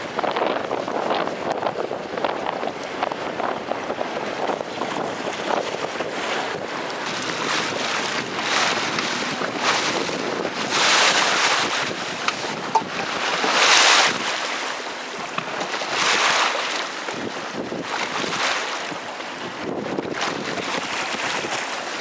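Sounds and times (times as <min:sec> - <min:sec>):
waves slapping and splashing: 0:00.0 - 0:22.0
wind buffeting microphone: 0:00.0 - 0:22.0.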